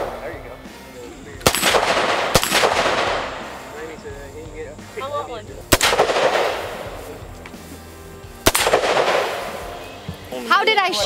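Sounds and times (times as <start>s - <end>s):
rifle gunshots echoing: 1.4s - 4.0s, 5.6s - 7.0s, 8.4s - 9.9s.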